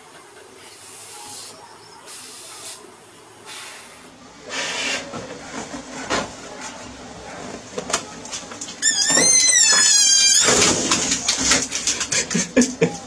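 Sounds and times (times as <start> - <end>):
air hissing from deflating balloon: 0.7 - 5.0.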